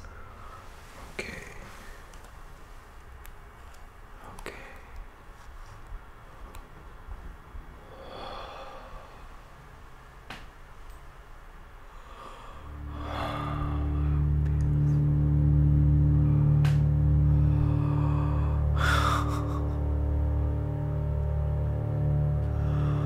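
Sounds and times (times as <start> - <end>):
man breathing: 7.8 - 9.6, 11.8 - 14.4, 17.1 - 23.0
low droning score: 11.7 - 23.0.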